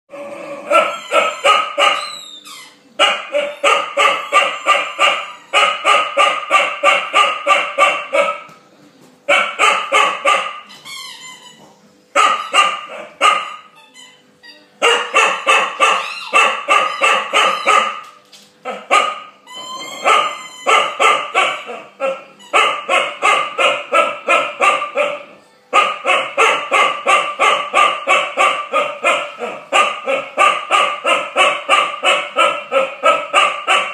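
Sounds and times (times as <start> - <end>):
dog barking sharply: 14.8 - 18.0.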